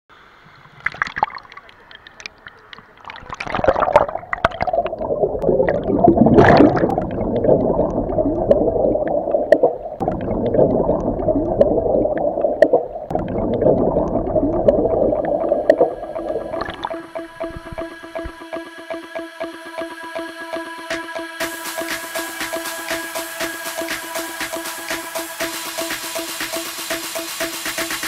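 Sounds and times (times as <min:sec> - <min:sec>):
underwater bubbling: 0:00.4 - 0:18.7
sharp ticks: 0:12.4 - 0:28.0.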